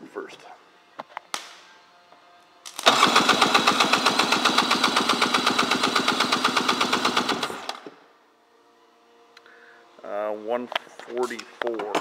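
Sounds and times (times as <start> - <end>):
engine cranking chuffing: 2.8 - 7.8.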